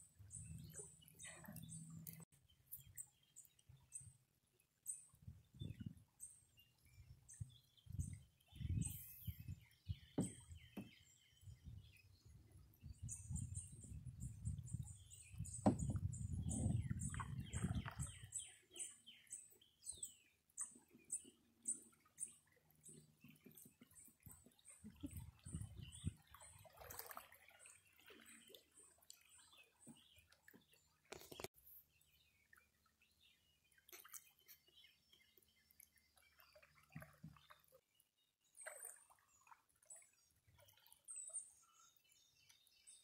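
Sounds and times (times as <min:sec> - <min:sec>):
knocks: 0:10.2 - 0:10.9
birds chirping and calling: 0:13.0 - 0:21.8.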